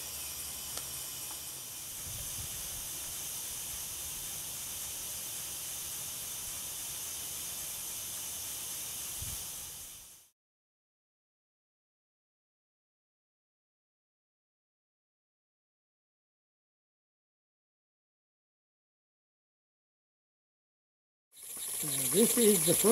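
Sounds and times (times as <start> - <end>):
air hissing from engine: 0.0 - 10.3.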